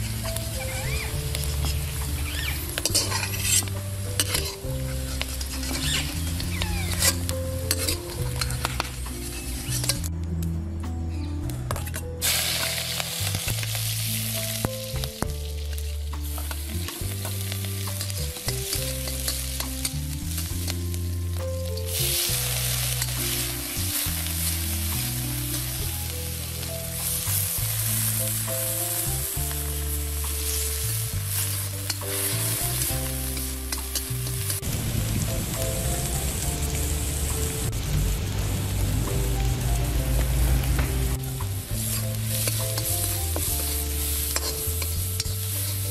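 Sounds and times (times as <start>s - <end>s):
oil sizzling in a wok: 0.0s - 10.0s, 12.2s - 45.9s
background music with bass line: 0.0s - 45.9s
ladle clinking and scraping: 2.8s - 5.9s, 6.9s - 10.1s.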